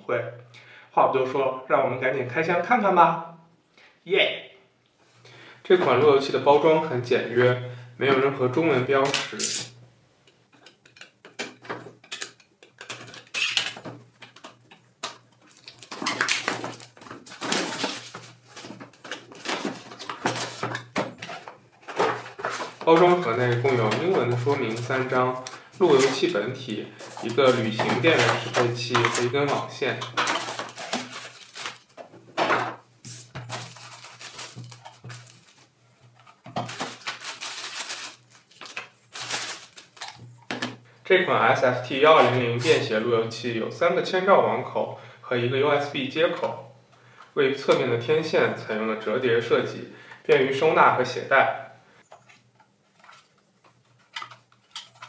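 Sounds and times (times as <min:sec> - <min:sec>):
plastic bags crinkling: 0:12.8 - 0:32.3, 0:33.1 - 0:40.6, 0:53.0 - 0:55.0.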